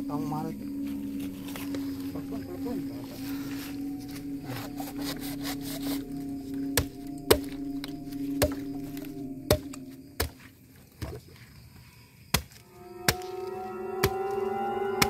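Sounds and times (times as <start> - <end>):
machete chopping coconut: 12.3 - 12.6.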